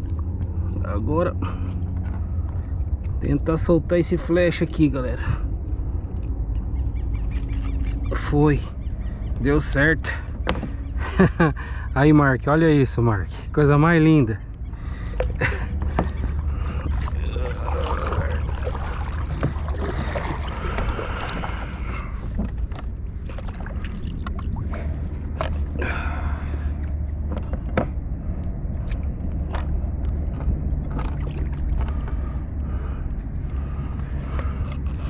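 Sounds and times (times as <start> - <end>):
low rumble of kayak on water: 0.0 - 12.2, 13.0 - 35.0
paddle knocking against hull: 10.4 - 10.8, 15.2 - 24.4.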